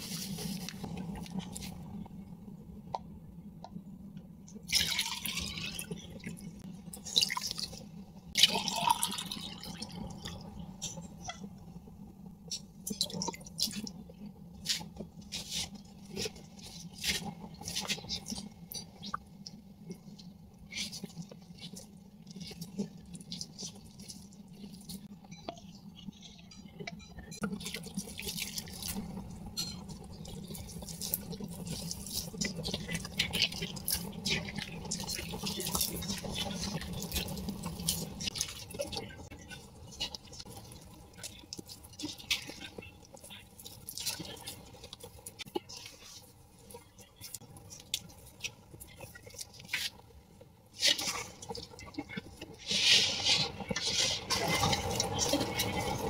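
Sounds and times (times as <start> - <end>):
hand squelching wet dough: 12.4 - 25.1, 27.5 - 56.0.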